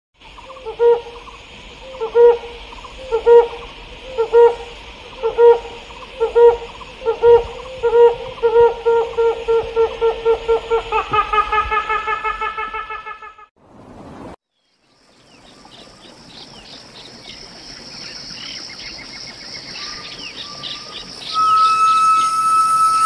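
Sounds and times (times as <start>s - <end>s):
steady high hiss: 0.2s - 11.8s, 13.7s - 23.0s
low hooting calls: 0.4s - 13.1s, 19.8s - 23.0s.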